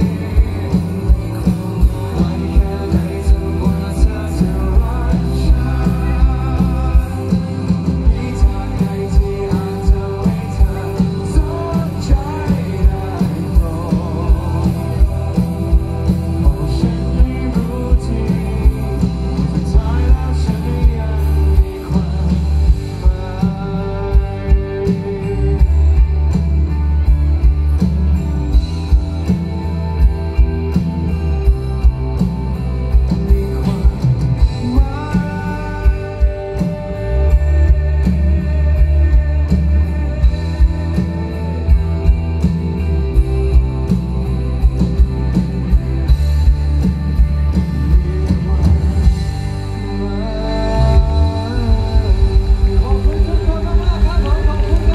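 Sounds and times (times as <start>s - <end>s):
man singing: 0.0s - 26.8s, 33.4s - 43.5s, 47.9s - 54.9s
drum kit beat: 0.0s - 54.9s
electric guitar: 0.0s - 54.9s.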